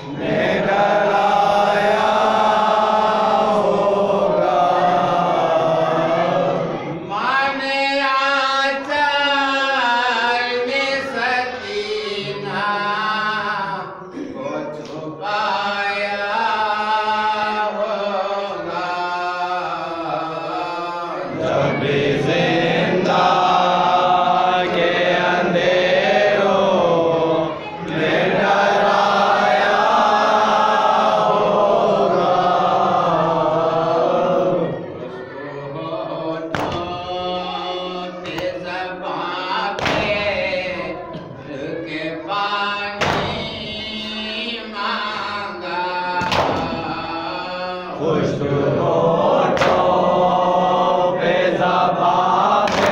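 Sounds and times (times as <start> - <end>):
group of men chanting: 0.0 - 14.0, 14.6 - 52.9
man chanting into a microphone: 7.1 - 21.3, 35.8 - 49.2.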